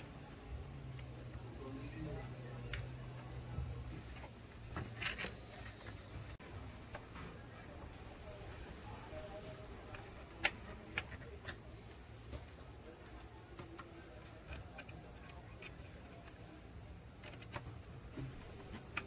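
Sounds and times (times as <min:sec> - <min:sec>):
faint low hum: 0:00.0 - 0:19.0.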